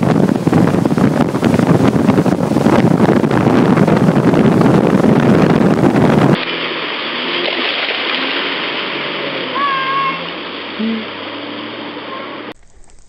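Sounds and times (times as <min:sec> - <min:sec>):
wind on microphone: 0:00.0 - 0:06.7
churning wake water: 0:00.0 - 0:13.0.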